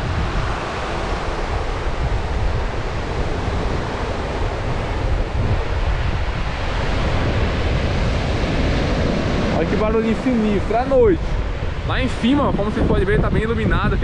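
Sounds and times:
sea surf on beach: 0:00.0 - 0:14.0
wind blowing across microphone: 0:00.0 - 0:14.0.

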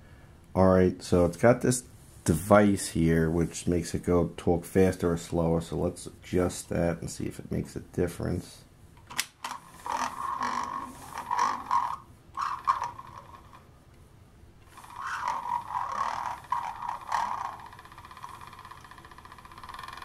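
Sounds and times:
steady buzzing tone: 0:09.4 - 0:13.9, 0:14.5 - 0:20.0
garbled toy voice playback: 0:14.8 - 0:17.8.

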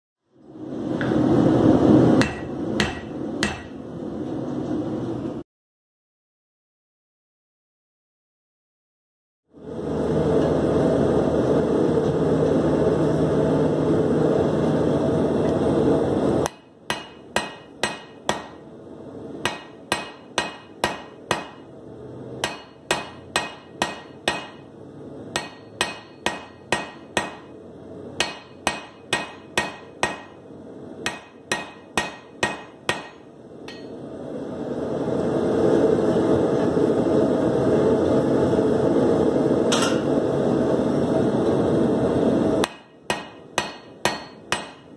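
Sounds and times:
hammer ringing on hot steel: 0:02.2 - 0:03.8, 0:16.4 - 0:18.6, 0:19.4 - 0:21.7, 0:22.4 - 0:24.7, 0:25.3 - 0:27.6, 0:28.2 - 0:30.4, 0:31.0 - 0:34.0, 0:42.6 - 0:44.9.

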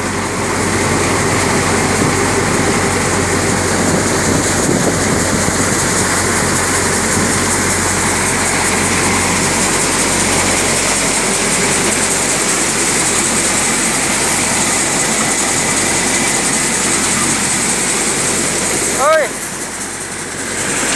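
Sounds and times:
thresher engine humming: 0:00.0 - 0:20.9.

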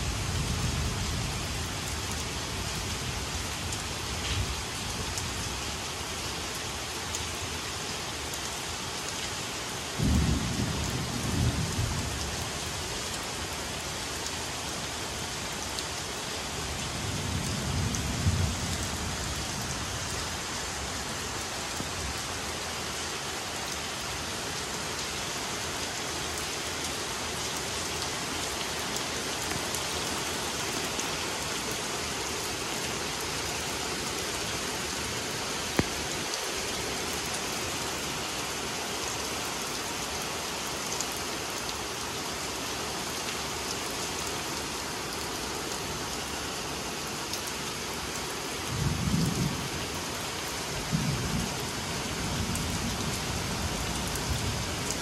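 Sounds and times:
rain on trees and deck: 0:00.0 - 0:55.0
low thunder rumbles: 0:10.0 - 0:12.2.

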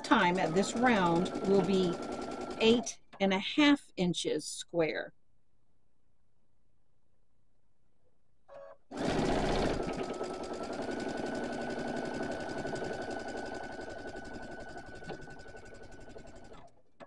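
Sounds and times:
sewing machine stitching: 0:00.0 - 0:03.0, 0:08.9 - 0:17.0.

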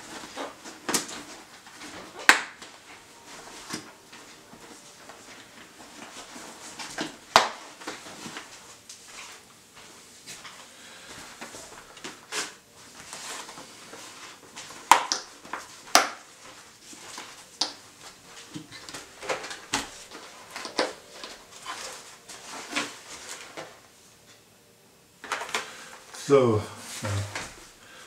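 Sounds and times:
helmet padding rustling: 0:00.0 - 0:24.1.

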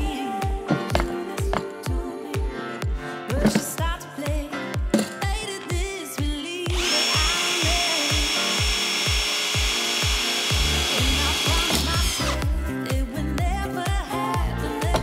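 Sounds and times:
music with drum beat: 0:00.0 - 0:15.0
cordless drill whining: 0:06.7 - 0:12.5.

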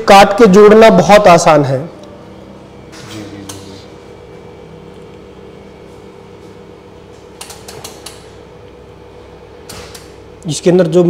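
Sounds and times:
machine electrical hum: 0:00.0 - 0:11.0
control clicks: 0:07.4 - 0:08.3.

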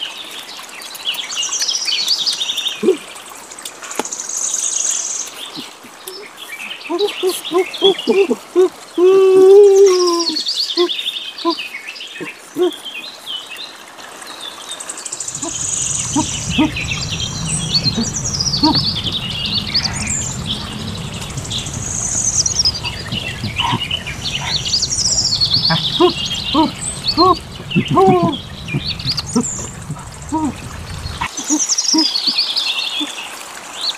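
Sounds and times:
small birds chirping and trilling: 0:09.8 - 0:33.9
low steady background rumble: 0:15.2 - 0:31.6.

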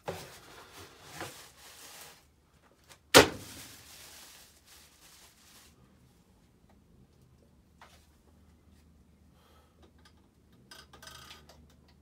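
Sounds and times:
plastic wrapping rustling: 0:00.0 - 0:05.9.

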